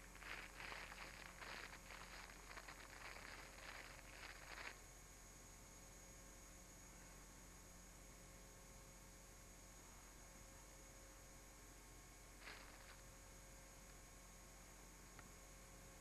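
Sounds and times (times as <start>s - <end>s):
rustling in dry leaves: 0.0s - 4.8s, 12.4s - 13.0s
tape hiss and hum: 0.0s - 8.3s, 9.3s - 16.0s.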